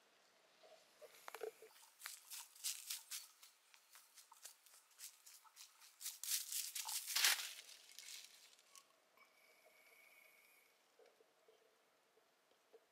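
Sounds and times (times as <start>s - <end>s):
footsteps on dry leaves: 2.0s - 8.7s.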